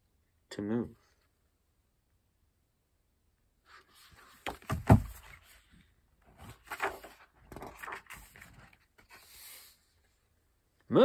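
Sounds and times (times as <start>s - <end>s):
book thump: 4.4s - 5.4s
paper pages rustling: 6.3s - 9.8s.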